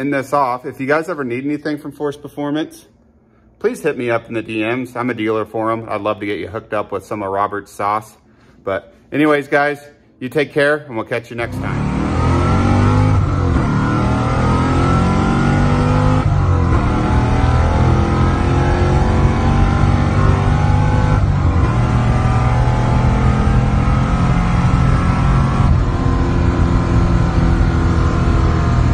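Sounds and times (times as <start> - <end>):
car engine accelerating through gears: 11.4 - 28.9.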